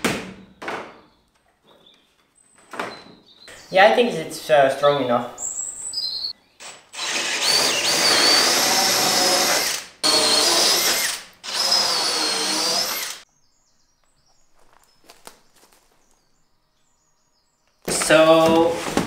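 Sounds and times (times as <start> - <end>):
cordless drill boring into wood: 6.6 - 13.2.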